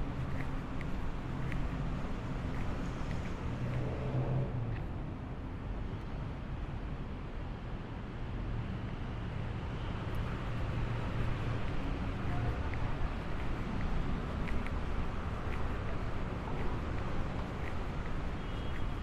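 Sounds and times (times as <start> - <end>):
vehicle engines passing: 0.0 - 5.2, 9.6 - 19.0.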